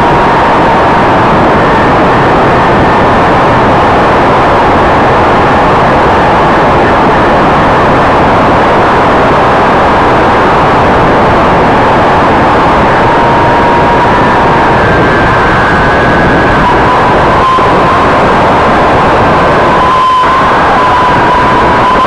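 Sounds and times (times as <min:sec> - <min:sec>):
faint motor whine: 0:00.0 - 0:22.0
propeller and wind rush: 0:00.0 - 0:22.0.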